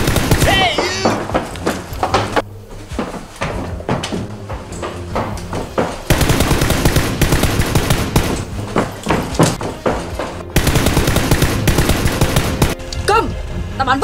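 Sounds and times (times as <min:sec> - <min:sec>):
rapid automatic gunfire: 0:00.0 - 0:00.5, 0:06.1 - 0:08.4, 0:10.6 - 0:12.8.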